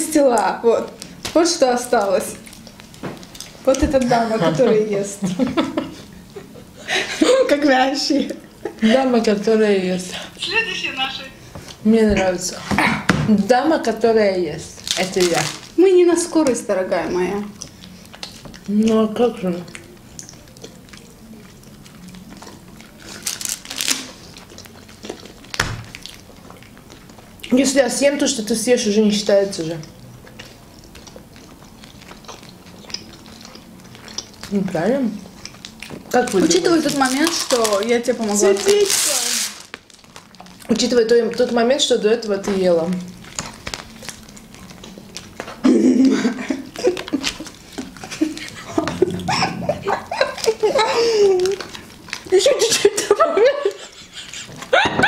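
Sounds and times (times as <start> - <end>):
people chewing sticky food: 0.0 - 10.7, 14.6 - 54.9
plastic film crinkling: 0.2 - 4.3, 14.6 - 21.0, 21.9 - 27.2, 35.3 - 45.6, 46.5 - 48.6, 50.2 - 53.0
giggling: 4.0 - 9.1, 45.6 - 51.7, 52.5 - 55.0
muffled laughter: 45.6 - 51.5, 52.8 - 55.0.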